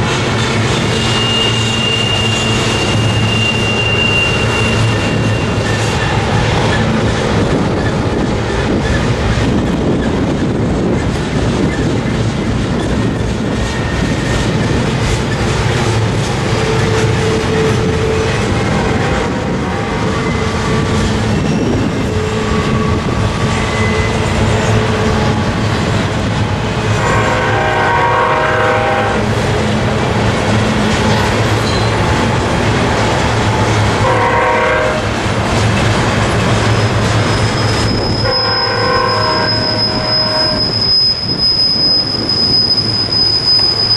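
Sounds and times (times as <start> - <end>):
train wheel squeal: 0.0 - 25.9, 30.8 - 32.3, 35.5 - 43.9
freight train rumbling past: 0.0 - 43.9
wheels clickety-clack: 4.4 - 27.3, 29.2 - 38.3.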